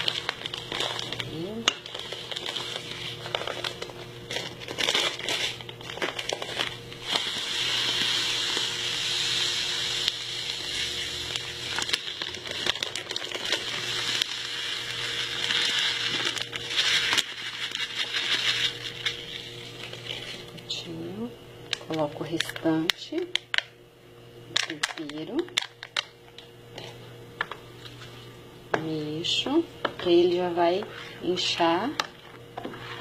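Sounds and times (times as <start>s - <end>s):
plastic packet crinkling: 0.0s - 8.8s, 10.0s - 20.6s, 24.5s - 26.9s.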